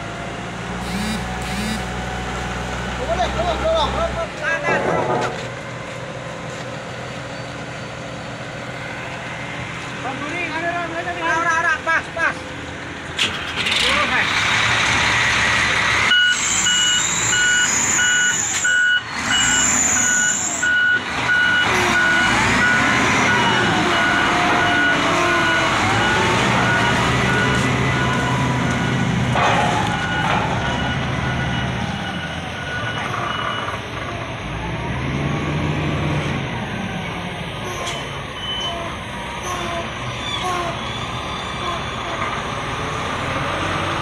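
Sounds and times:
forklift engine running: 0.0 - 10.2, 12.0 - 44.0
reversing alarm beeping: 0.8 - 2.0, 16.1 - 29.1, 29.7 - 33.8.

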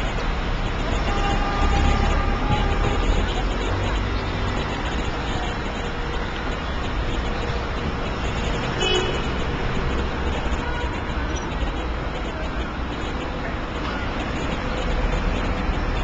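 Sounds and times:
traffic rumble: 0.0 - 16.0
car horn toot: 1.0 - 11.4.

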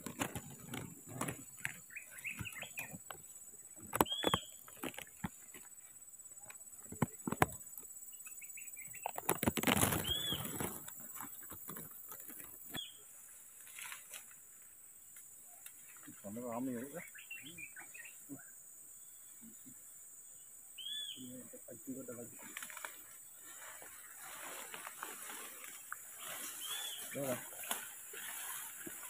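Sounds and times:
leaves and stems rustling: 0.0 - 7.8, 9.0 - 17.1, 21.8 - 29.0.

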